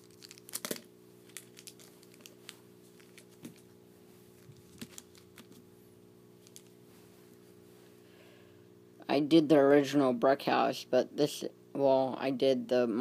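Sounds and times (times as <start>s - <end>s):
cigars being handled: 0.0s - 5.7s, 6.4s - 7.4s
faint steady hum: 0.0s - 13.0s.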